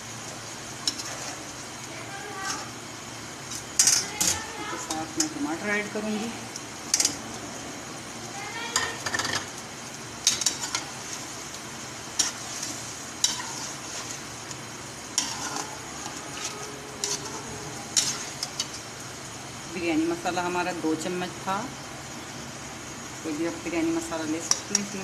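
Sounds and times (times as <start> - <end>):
food sizzling: 0.0 - 25.0
spatula scraping metal pot: 15.2 - 18.8.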